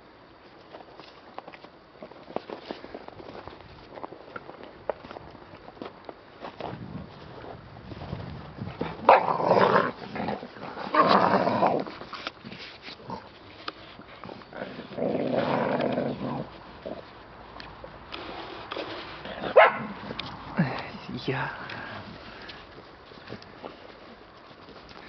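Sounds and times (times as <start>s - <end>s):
dogs scuffling: 0.4s - 25.0s
dogs growling: 8.7s - 12.1s, 14.0s - 17.1s.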